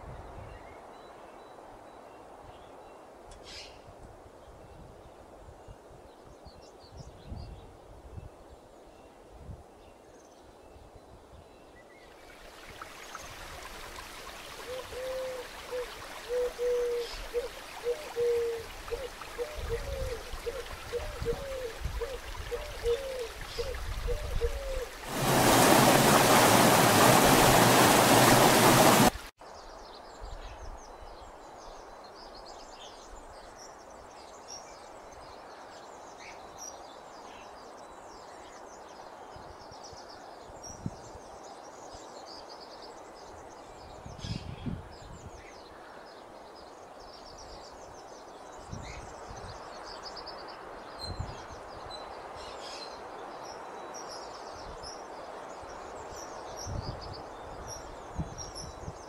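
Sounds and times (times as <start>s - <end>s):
soft steady hiss: 7.7s - 44.0s
stream rushing over stones: 12.2s - 29.3s.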